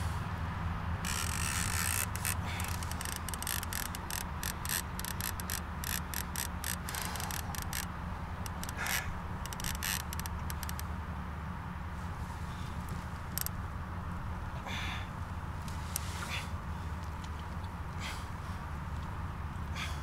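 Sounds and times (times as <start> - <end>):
steady low hum: 0.0 - 20.0
fishing reel clicking: 1.0 - 10.8.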